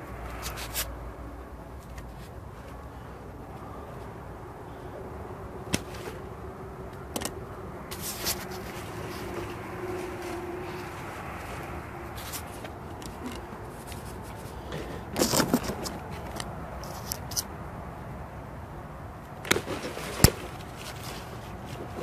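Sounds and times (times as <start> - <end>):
dry plant stalks rustling: 7.9 - 17.4.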